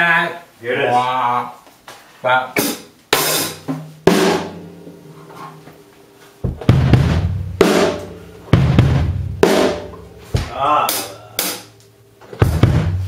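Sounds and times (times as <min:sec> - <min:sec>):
deep drum hits with cymbal wash: 0:03.2 - 0:05.1, 0:06.4 - 0:11.7, 0:12.4 - 0:13.0.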